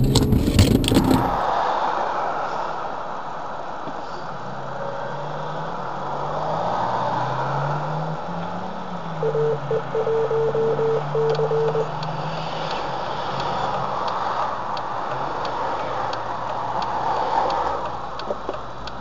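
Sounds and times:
car engine running: 0:00.0 - 0:01.4
car horn honking: 0:09.2 - 0:11.9.

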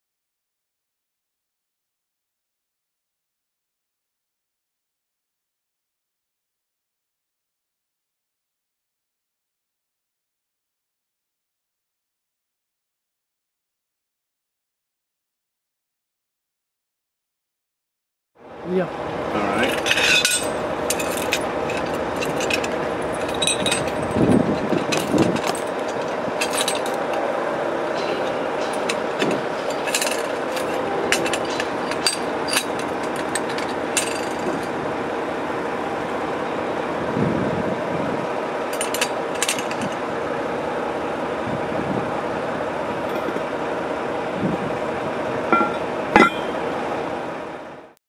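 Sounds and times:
mechanical hum: 0:18.4 - 0:48.0
metal clinks and scrapes: 0:19.5 - 0:27.2, 0:27.9 - 0:34.8, 0:38.7 - 0:40.0, 0:45.5 - 0:46.6
heavy metal lid clank: 0:45.5 - 0:46.6.

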